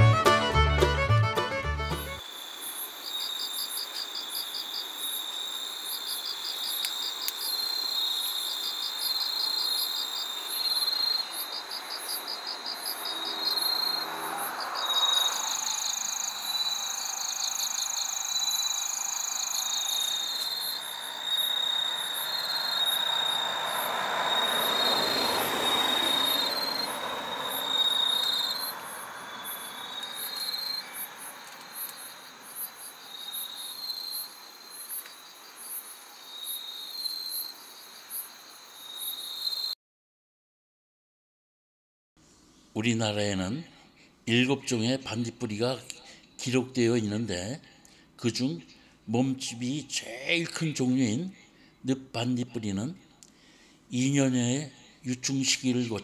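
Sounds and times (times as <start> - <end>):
crickets chirping: 2.1 - 39.8.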